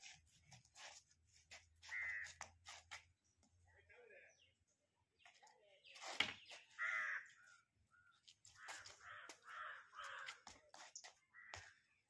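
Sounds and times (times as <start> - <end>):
crows cawing: 1.8 - 2.5, 6.7 - 10.6, 11.3 - 11.9.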